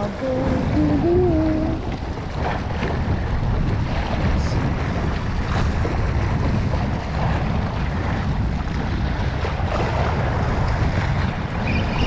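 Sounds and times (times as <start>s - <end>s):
sea waves washing: 0.0s - 12.0s
wind rumbling on microphone: 0.0s - 12.0s.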